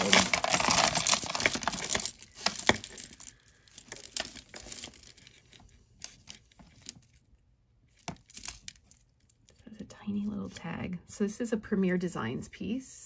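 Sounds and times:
jewelry chains rattling and clinking: 0.0s - 5.7s, 8.1s - 9.6s.

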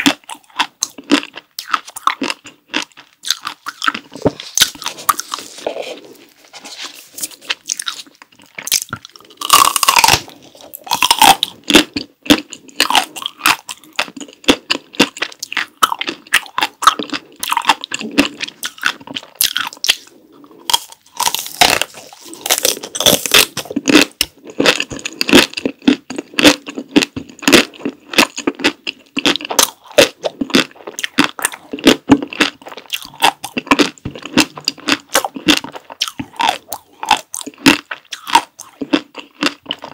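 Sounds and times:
chewing with wet mouth clicks: 0.0s - 5.4s
crunching bites into ice cream bar: 7.2s - 39.9s.

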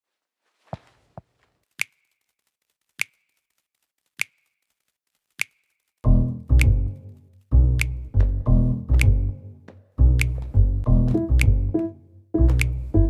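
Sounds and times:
sharp ticks: 1.7s - 8.2s
music with deep bass: 7.6s - 9.4s.

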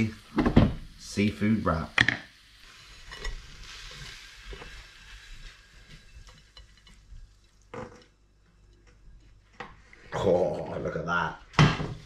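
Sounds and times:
faint sizzle: 0.0s - 12.0s
scraping food from frying pan: 2.6s - 7.3s.

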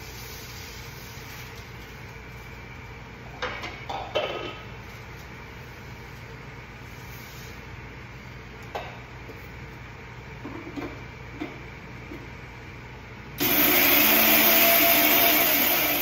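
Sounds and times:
mixer grinder grinding spices: 13.4s - 16.0s.

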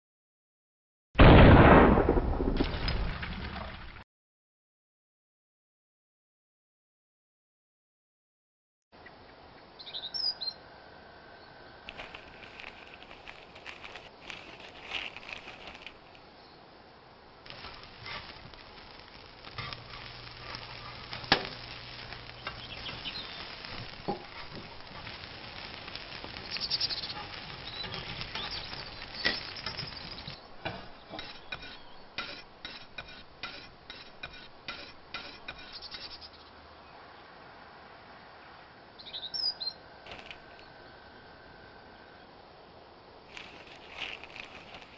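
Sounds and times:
paper rustle: 11.9s - 16.2s, 40.1s - 40.6s, 43.3s - 44.9s.

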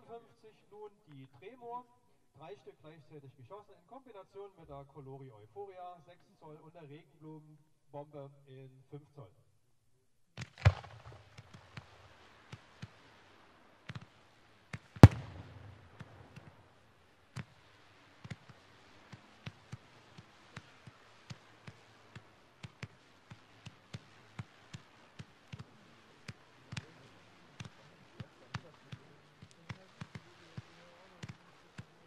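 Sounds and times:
heavy firework boom: 10.6s - 12.0s, 15.0s - 16.6s
firework battery reports: 14.8s - 16.8s.

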